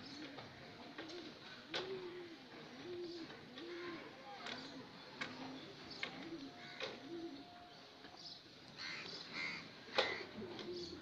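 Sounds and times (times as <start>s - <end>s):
pigeons cooing: 0.0s - 4.0s, 10.1s - 11.0s.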